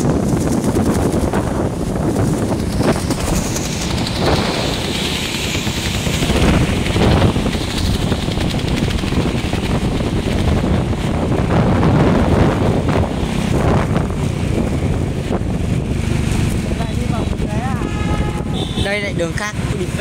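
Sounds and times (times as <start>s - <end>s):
engine and tyre noise on wet road: 0.0s - 20.0s
wind buffeting microphone: 0.0s - 20.0s
hiss: 2.8s - 8.2s.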